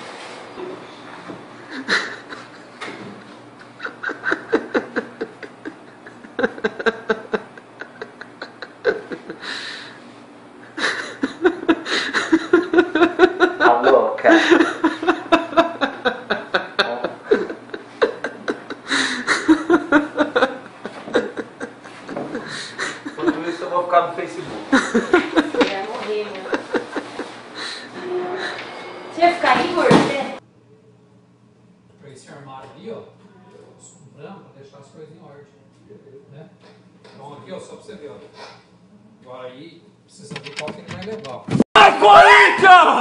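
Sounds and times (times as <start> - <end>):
men laughing and snickering: 1.6 - 10.0, 10.6 - 23.8, 24.6 - 28.7.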